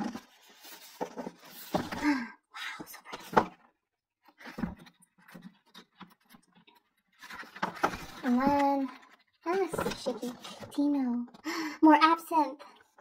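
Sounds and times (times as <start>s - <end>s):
paper pages rustling: 0.0s - 2.1s, 2.9s - 3.7s, 4.3s - 11.4s.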